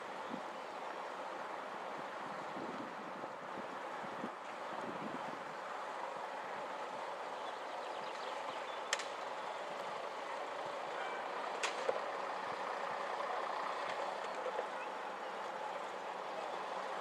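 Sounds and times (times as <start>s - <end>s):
distant bus engine running: 0.0s - 17.0s
sharp clicks: 8.9s - 9.2s.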